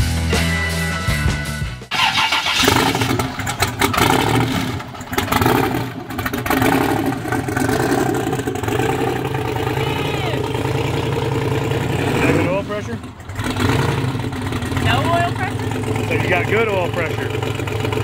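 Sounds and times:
rock music: 0.0s - 3.9s
truck engine running: 0.0s - 18.0s.

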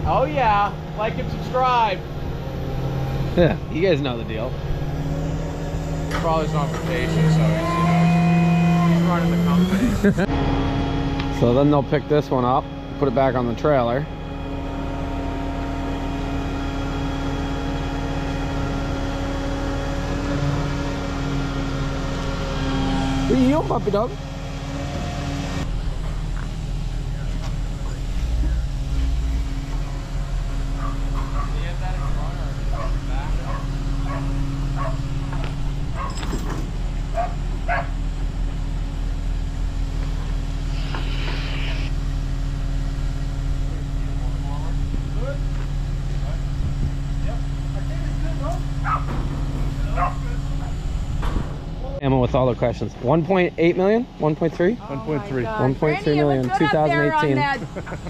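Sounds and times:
heavy equipment engine droning: 0.0s - 58.0s
dog barking: 30.8s - 36.2s, 37.1s - 38.0s, 48.8s - 49.1s, 49.9s - 50.3s
short hiss: 40.7s - 42.0s.

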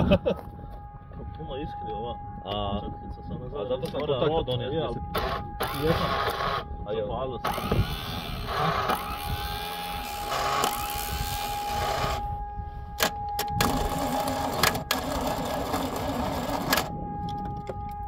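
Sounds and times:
starter motor cranking: 7.5s - 12.2s, 13.6s - 16.9s.

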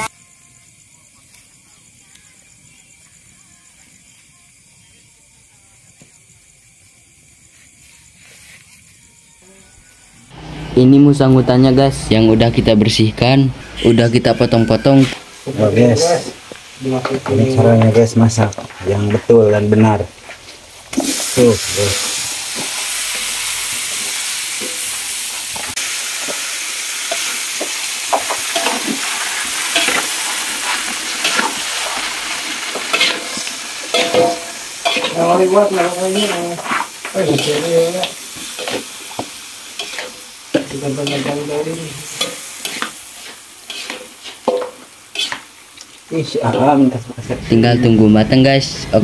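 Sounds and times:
meat sizzling in hot oil: 14.4s - 47.2s
metal spatula scraping a wok: 27.1s - 39.1s, 39.7s - 45.5s.

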